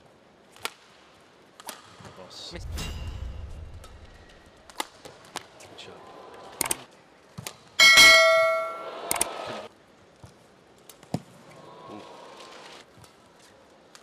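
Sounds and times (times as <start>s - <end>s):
bell-like ring: 7.8s - 9.0s.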